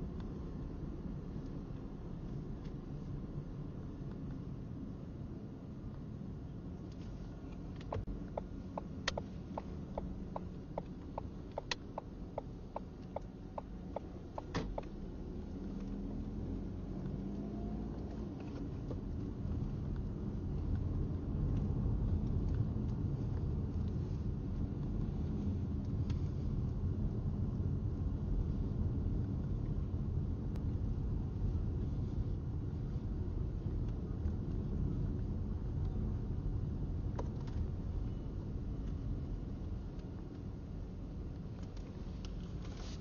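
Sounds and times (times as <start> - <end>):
vehicle rumbling: 0.0 - 43.0
regular clicks: 7.5 - 14.9.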